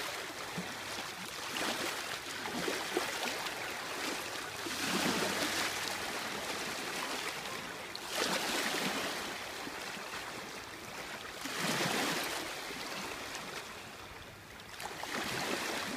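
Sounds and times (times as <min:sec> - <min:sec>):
waves lapping against shore: 0:00.0 - 0:15.9.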